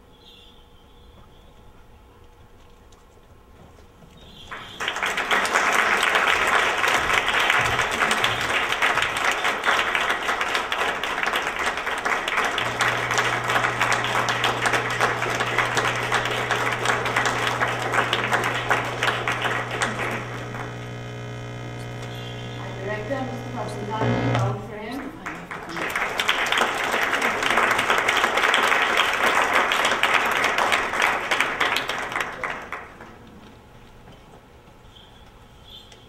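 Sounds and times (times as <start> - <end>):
low electrical hum: 0.0 - 36.0
audience applauding: 4.5 - 23.8, 24.9 - 33.2.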